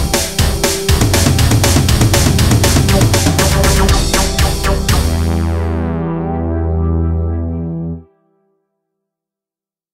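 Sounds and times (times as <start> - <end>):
music ending on low chord: 0.9 - 8.0.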